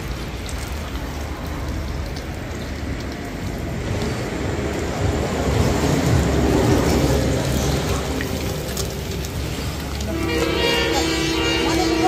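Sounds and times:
fish sizzling in hot oil: 6.4 - 11.1.

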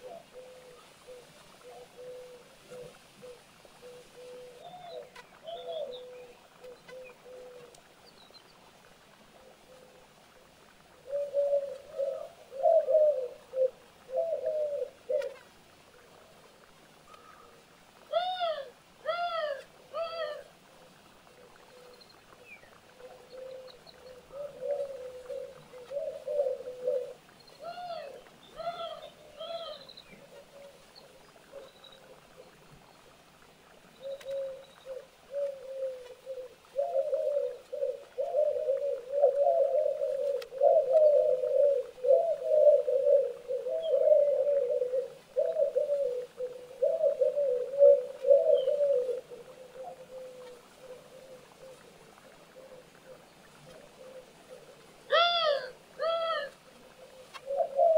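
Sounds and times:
bird calling low notes: 21.6 - 30.8, 54.0 - 57.9.

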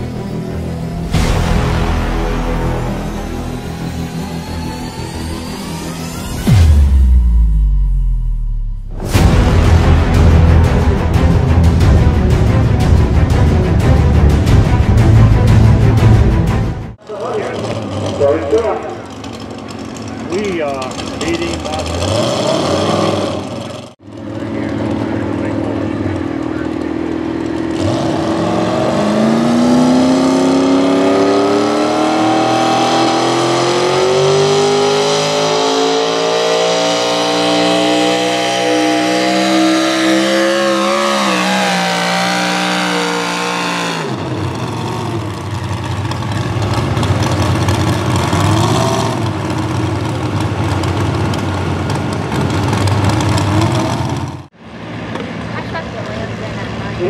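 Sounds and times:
engine low rough rumble: 0.0 - 22.2, 22.9 - 30.9, 41.8 - 57.0
truck engine at full throttle: 0.0 - 57.0.

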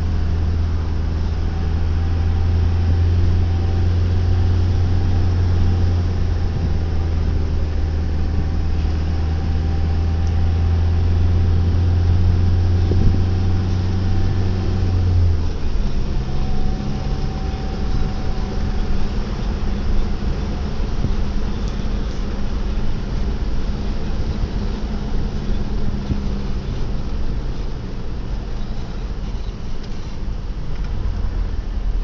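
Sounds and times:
vehicle engine drone: 0.0 - 32.0
wind noise: 1.9 - 27.5.

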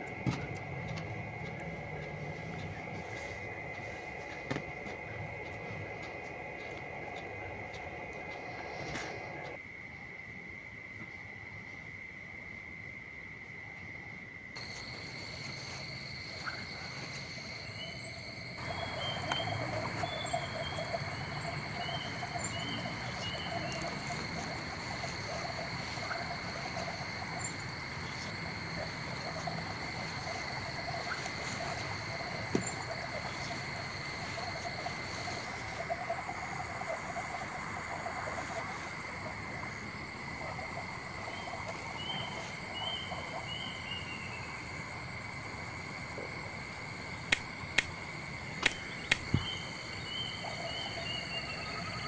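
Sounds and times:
frogs croaking: 0.0 - 52.0
high insect trill: 14.6 - 52.0.

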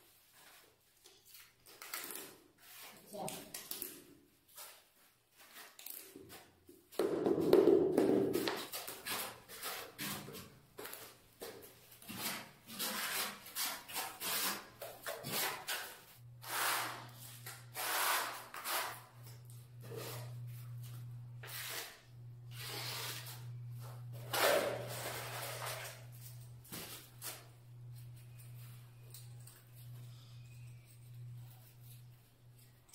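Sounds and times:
trowel scraping tile adhesive: 12.0 - 20.4, 21.4 - 23.5
steady low hum: 19.1 - 32.9.

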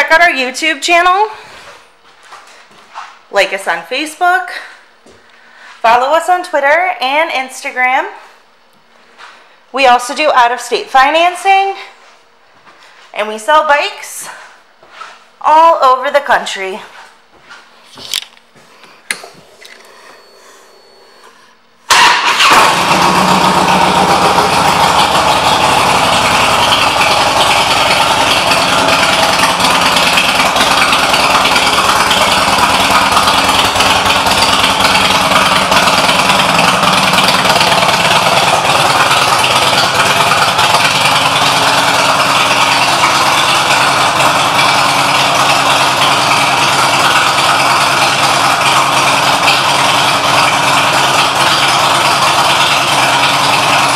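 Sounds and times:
motorcycle engine starting and idling: 19.0 - 53.9.

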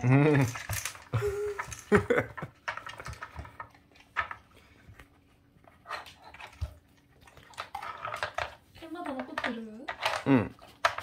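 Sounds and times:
plastic puzzle toy clicks and knocks: 0.4 - 1.9, 7.8 - 11.0.

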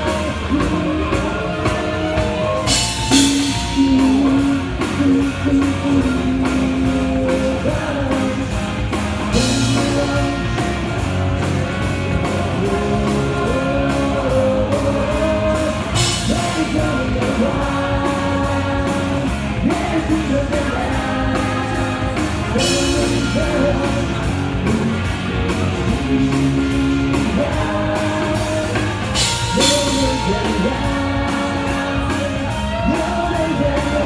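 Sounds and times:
rock song over concert speakers: 0.0 - 34.0.

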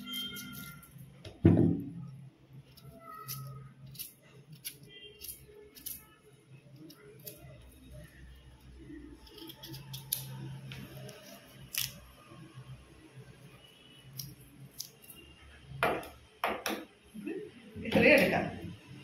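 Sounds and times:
knife cutting yam: 2.6 - 12.1, 14.0 - 15.2.

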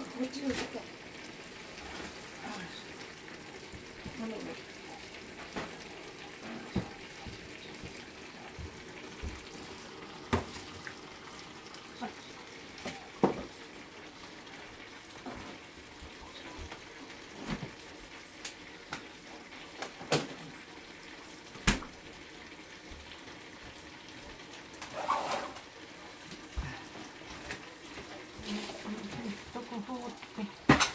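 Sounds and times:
dishes clinking and knocking: 30.7 - 30.9.

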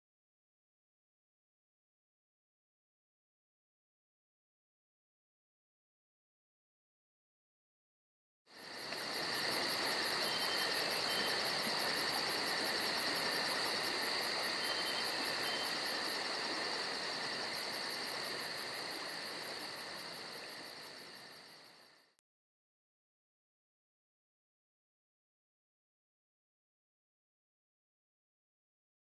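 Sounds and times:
insects trilling: 8.5 - 22.2.

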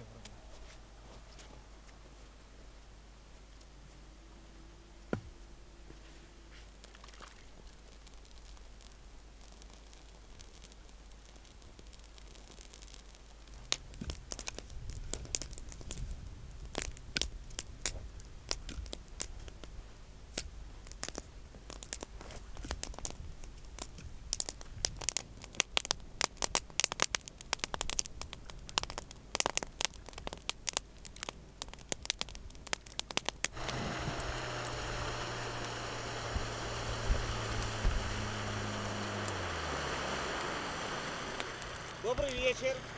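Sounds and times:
fire crackling and popping: 6.7 - 42.9
outboard motor droning: 33.5 - 42.9.

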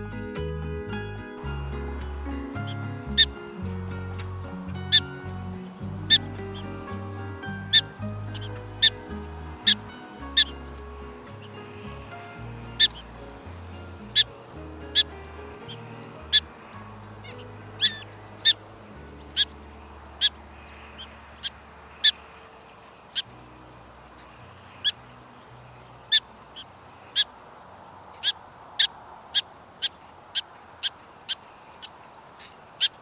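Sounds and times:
prairie dog alarm barks: 1.9 - 3.6, 4.8 - 18.6.

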